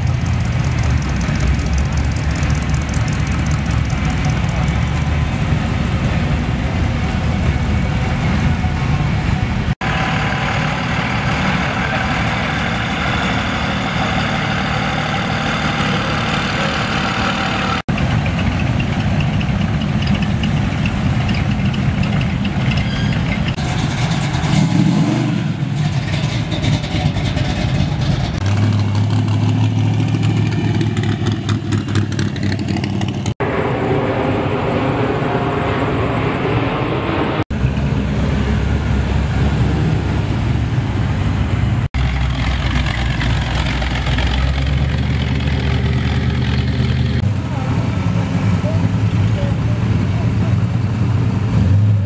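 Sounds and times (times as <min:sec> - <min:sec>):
truck engines rumbling: 0:00.0 - 0:52.0
low drone: 0:33.4 - 0:42.9.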